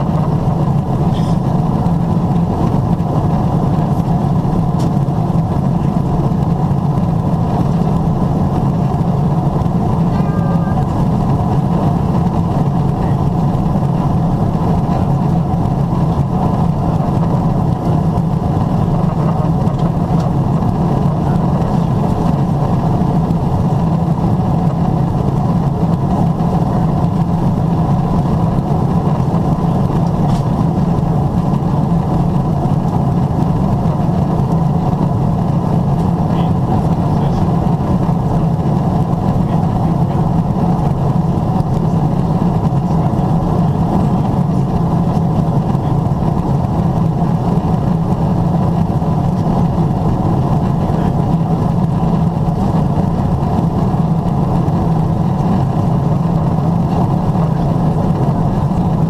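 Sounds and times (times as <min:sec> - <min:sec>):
airplane cabin hum: 0:00.0 - 0:59.0.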